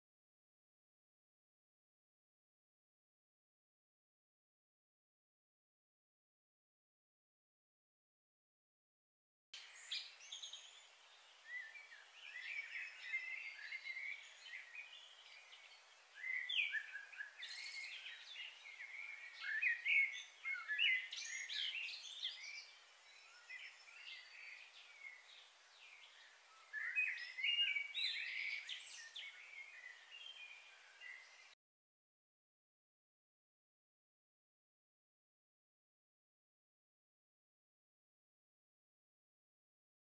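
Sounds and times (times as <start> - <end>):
faint steady hiss: 9.6 - 31.6
small birds chirping: 9.6 - 31.6.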